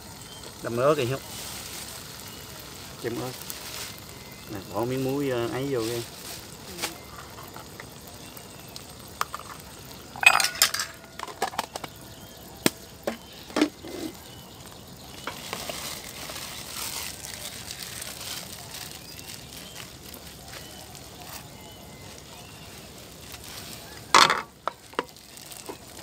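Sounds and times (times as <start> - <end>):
sauce sizzling in pan: 0.0 - 26.0
spoon clinking against cookware: 10.2 - 11.7.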